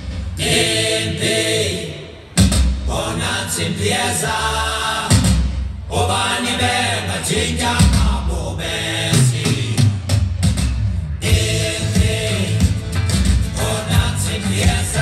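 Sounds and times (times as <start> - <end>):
low drum beats: 0.0 - 0.7, 2.4 - 3.0, 5.1 - 5.9, 7.8 - 8.3, 9.2 - 15.0
choir singing and chanting: 0.0 - 10.2, 11.2 - 15.0.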